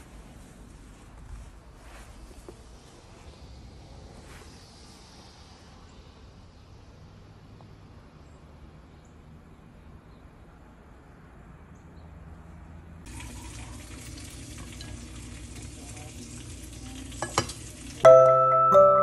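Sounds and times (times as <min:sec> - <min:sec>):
rice boiling and bubbling: 0:00.0 - 0:06.0, 0:13.1 - 0:18.1
glass lid clinking: 0:17.2 - 0:19.0.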